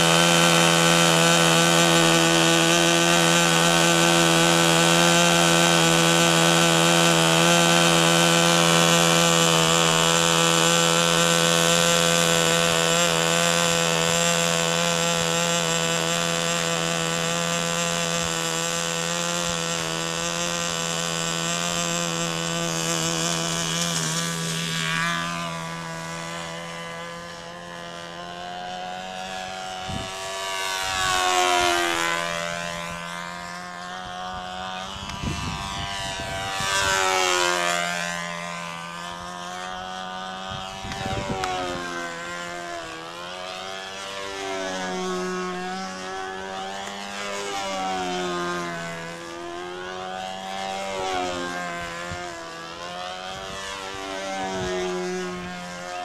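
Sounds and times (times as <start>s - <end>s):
model airplane motor and propeller: 0.0s - 56.0s.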